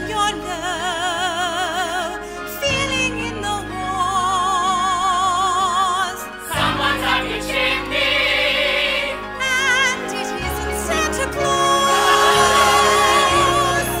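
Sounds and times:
choir-like singing with vibrato: 0:04.7 - 0:14.0.

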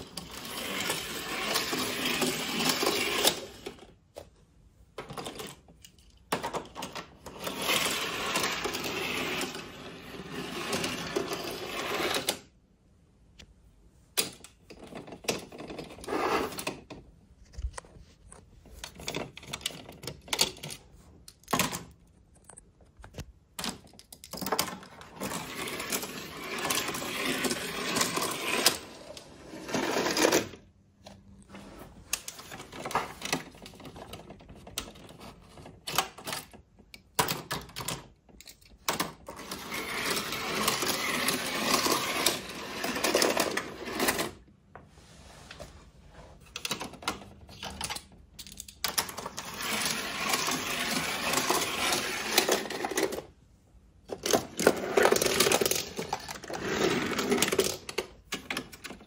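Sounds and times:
toy cars rattling on plastic ramps: 0:00.0 - 0:04.0, 0:05.0 - 0:12.5, 0:14.2 - 0:17.0, 0:23.7 - 0:30.6, 0:32.2 - 0:44.4, 0:46.5 - 0:53.4, 0:54.0 - 0:59.0.

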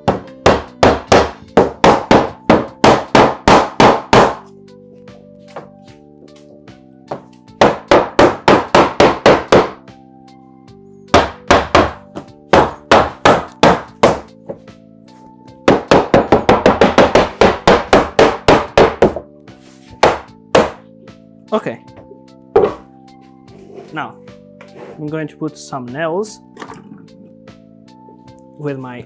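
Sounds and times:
mallet knocking on wooden panel: 0:00.0 - 0:04.5, 0:07.1 - 0:09.8, 0:11.1 - 0:14.7, 0:15.6 - 0:19.3, 0:20.0 - 0:20.8, 0:22.0 - 0:22.9.

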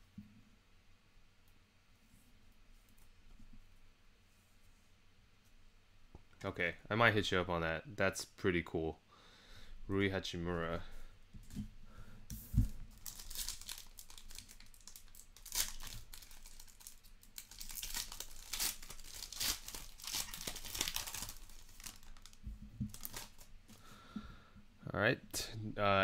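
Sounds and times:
foil wrapper crinkling and tearing: 0:12.9 - 0:23.5.

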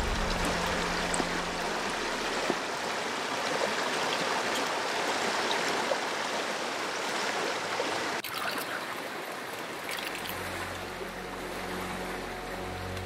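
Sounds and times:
low background music notes: 0:00.0 - 0:02.7, 0:10.4 - 0:13.0
stream rushing: 0:00.0 - 0:13.0.

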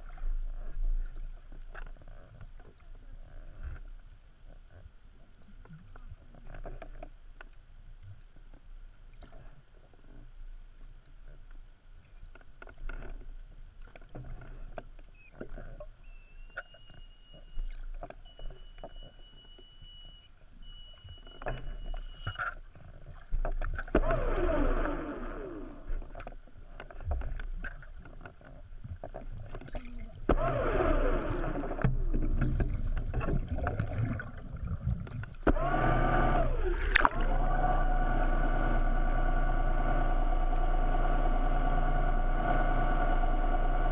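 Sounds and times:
low underwater rumble: 0:00.0 - 0:43.9
water rushing and bubbling: 0:23.0 - 0:39.6
steady high whine: 0:35.5 - 0:43.9.

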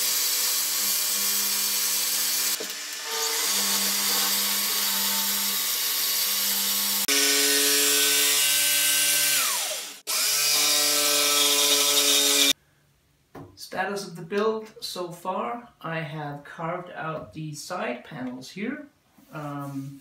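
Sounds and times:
track saw cutting wood: 0:00.0 - 0:12.6
motor winding down: 0:09.2 - 0:10.4.

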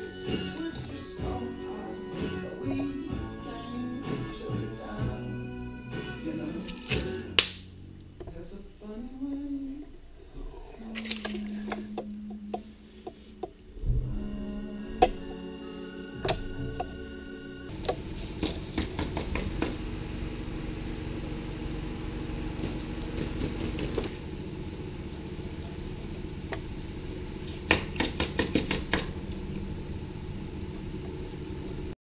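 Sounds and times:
motorcycle engine idling: 0:17.7 - 0:32.0.

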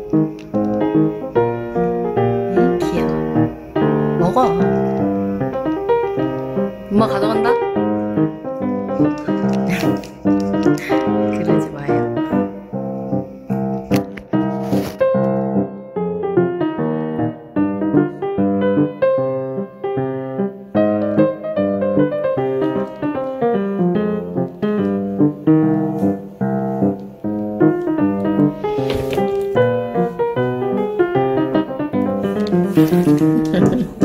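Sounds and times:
solo piano music: 0:00.0 - 0:34.0.

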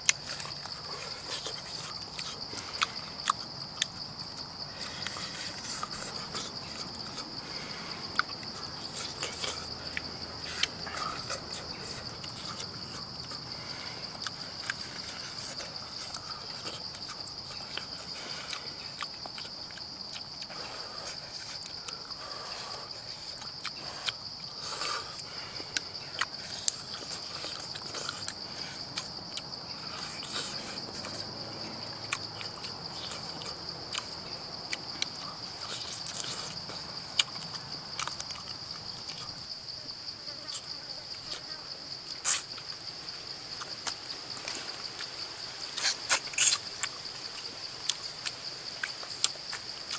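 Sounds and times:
insects droning: 0:00.0 - 0:49.9
chewing clicks and smacking: 0:08.1 - 0:13.4, 0:14.2 - 0:22.0, 0:32.0 - 0:39.4, 0:45.8 - 0:49.9.

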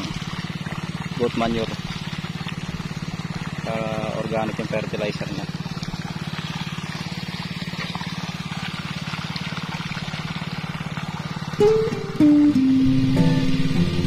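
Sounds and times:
small water pump engine throbbing: 0:00.0 - 0:14.0
guitar music: 0:11.6 - 0:14.0.

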